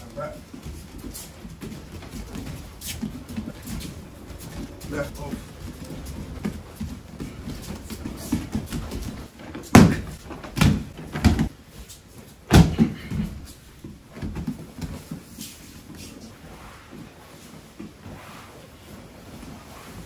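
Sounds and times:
bodies thudding on foam mats: 0:00.0 - 0:16.0
shuffling: 0:00.0 - 0:20.0.

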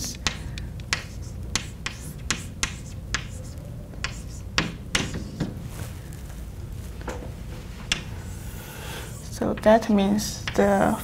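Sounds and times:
chalk tapping and scraping: 0:00.0 - 0:05.6, 0:07.8 - 0:08.5.

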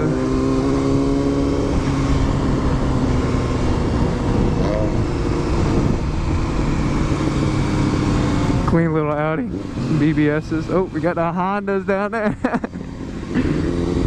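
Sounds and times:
wind buffeting microphone: 0:00.0 - 0:10.3
motorcycle engine running: 0:00.0 - 0:14.0.

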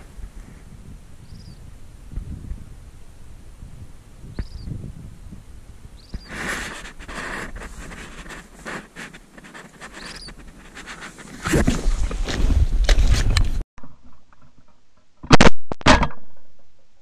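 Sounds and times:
faint high chirps: 0:04.3 - 0:04.7
fabric rustling and scraping: 0:06.3 - 0:13.4.

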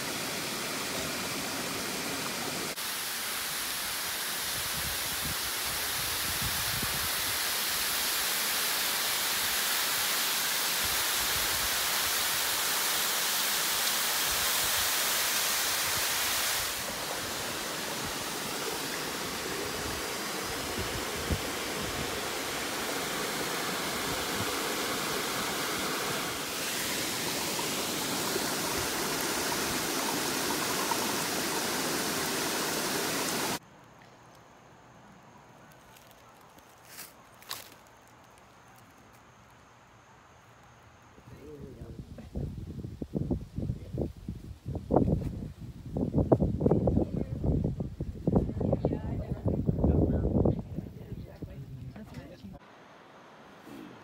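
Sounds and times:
stream water spilling over rock: 0:00.0 - 0:33.6.

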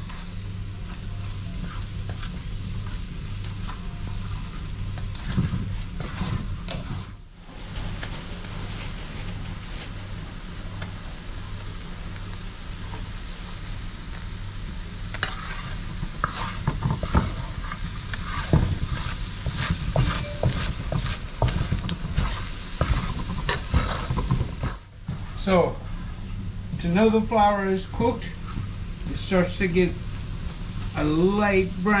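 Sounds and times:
wooden spatula scraping a pan: 0:00.0 - 0:09.8, 0:14.9 - 0:25.4
roux sizzling in a skillet: 0:00.0 - 0:32.0.

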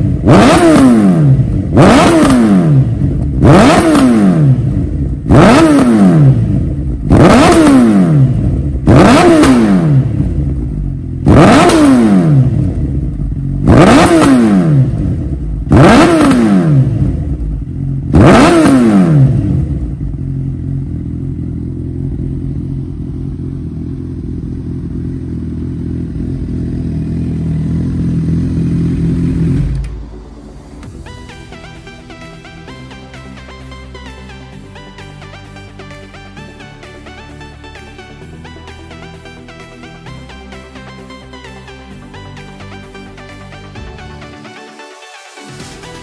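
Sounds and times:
motorcycle engine idling: 0:00.0 - 0:44.6
motorcycle engine revving: 0:00.0 - 0:44.6.

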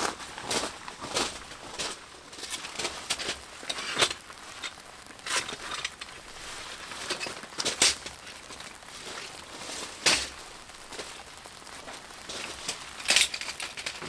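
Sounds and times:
footsteps crunching on gravel: 0:00.0 - 0:13.0
camp chair rustling and clicking: 0:00.0 - 0:14.0.

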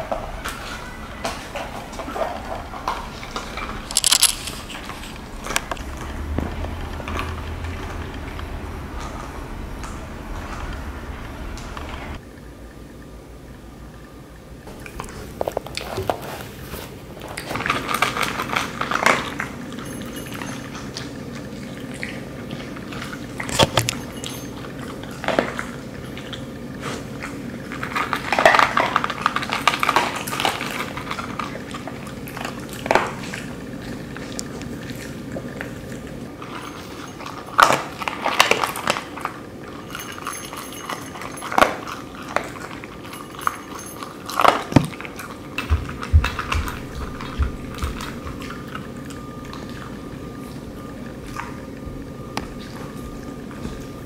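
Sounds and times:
dogs crunching food: 0:00.0 - 0:12.2, 0:14.6 - 0:54.0
food bowl clinking: 0:00.0 - 0:12.2, 0:17.5 - 0:21.2, 0:23.1 - 0:25.7, 0:36.4 - 0:49.4
low steady hum: 0:00.0 - 0:54.0.

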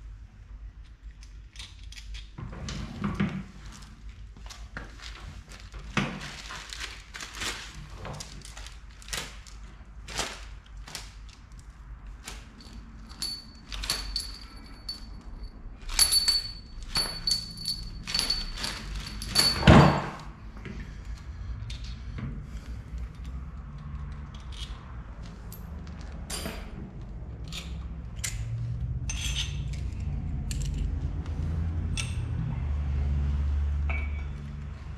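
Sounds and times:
metal tools clinking on engine block: 0:12.6 - 0:20.3, 0:27.4 - 0:30.8, 0:33.9 - 0:34.4.

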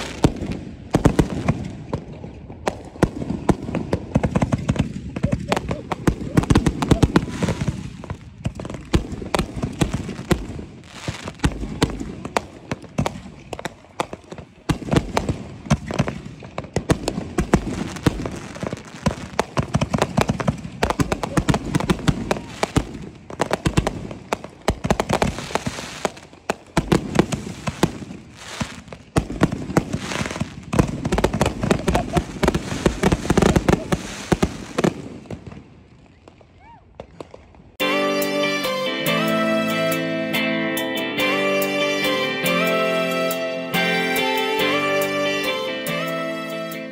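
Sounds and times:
fireworks bangs and crackles: 0:00.0 - 0:37.9.

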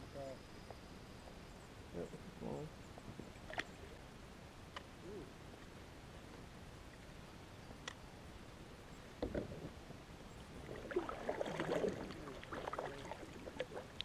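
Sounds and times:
water drips and gurgles: 0:10.4 - 0:14.0
paddle splashing in water: 0:10.6 - 0:14.0.

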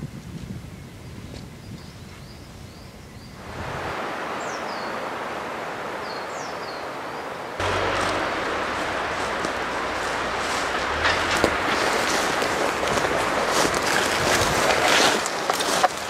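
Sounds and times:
wind hissing in trees: 0:00.0 - 0:16.0
wind rumble on microphone: 0:00.0 - 0:16.0
birds chirping: 0:01.6 - 0:16.0
falling bird calls: 0:04.3 - 0:16.0.

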